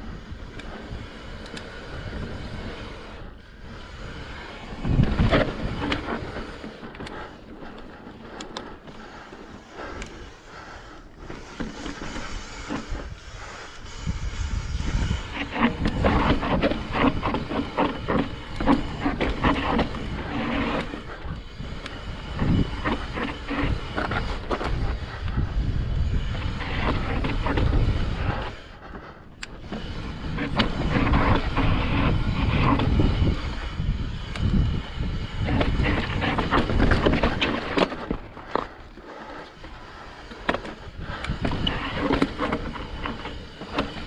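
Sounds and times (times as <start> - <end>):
wind on microphone: 0.0 - 7.2, 11.8 - 28.7, 29.6 - 38.3
bike tyres rumbling on rock: 0.0 - 44.0.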